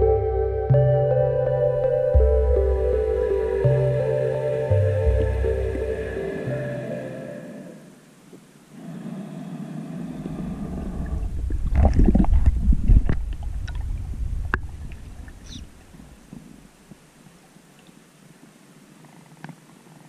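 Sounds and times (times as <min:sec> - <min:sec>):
low rumble: 0:00.0 - 0:07.9, 0:10.1 - 0:15.9
underwater bubbling: 0:01.8 - 0:08.0, 0:08.7 - 0:16.8.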